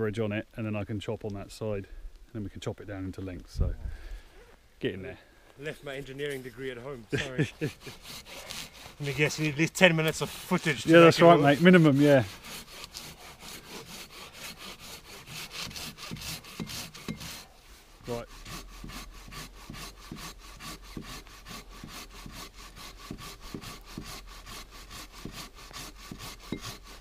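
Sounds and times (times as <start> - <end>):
hand saw cutting log: 7.2 - 27.0.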